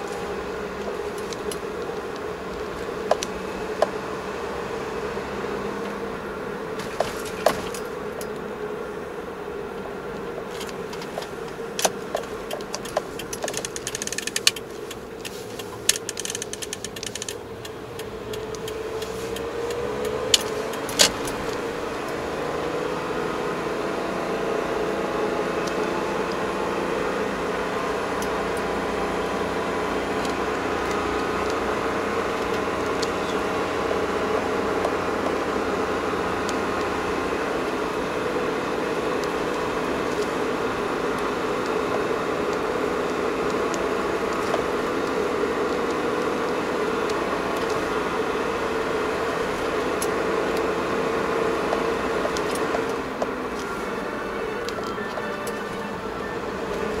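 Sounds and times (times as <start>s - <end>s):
car engine from inside cabin: 0.0s - 57.0s
sharp clicks and rattles: 0.1s - 4.0s, 10.3s - 22.2s.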